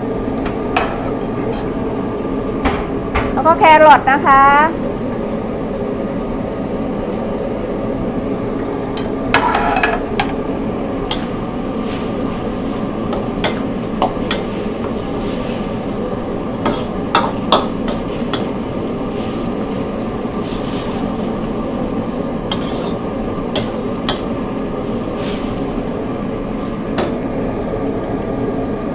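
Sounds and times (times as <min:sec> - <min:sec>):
food sizzling: 0:00.0 - 0:28.9
metal ladle scraping wok: 0:09.4 - 0:10.1, 0:11.1 - 0:16.0, 0:16.7 - 0:25.8.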